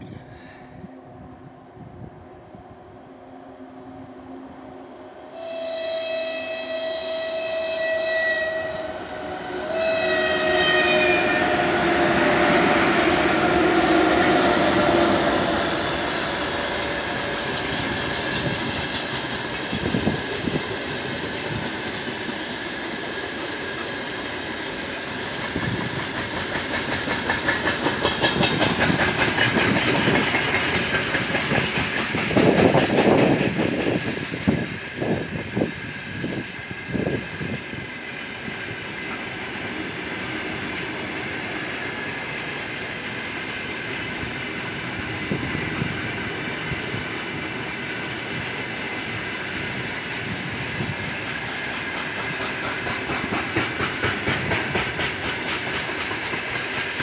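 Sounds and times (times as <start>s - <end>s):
locomotive horn blast: 3.9s - 15.2s
wheels clacking over rail joints: 15.8s - 34.6s, 49.8s - 57.0s.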